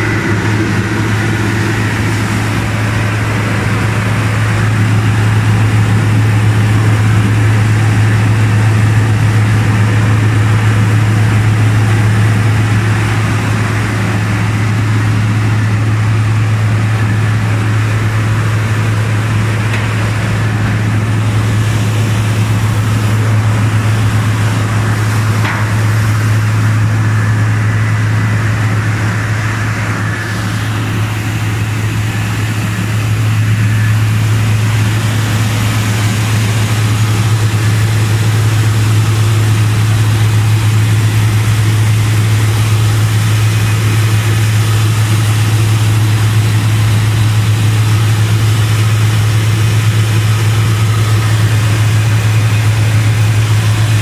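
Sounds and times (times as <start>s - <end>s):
rice milling machine humming: 0.0s - 54.0s.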